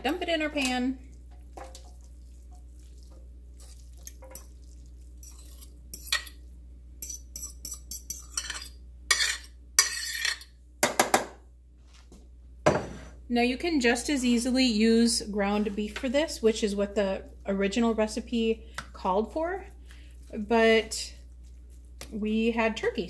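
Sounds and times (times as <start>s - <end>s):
utensil scraping a bowl: 2.8s - 6.4s.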